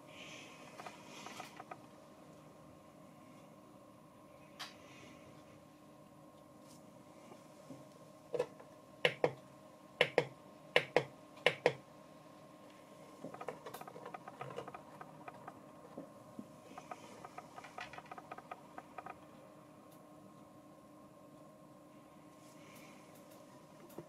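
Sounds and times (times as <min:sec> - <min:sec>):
rotary knob ticking: 0:13.3 - 0:15.6, 0:16.7 - 0:19.3.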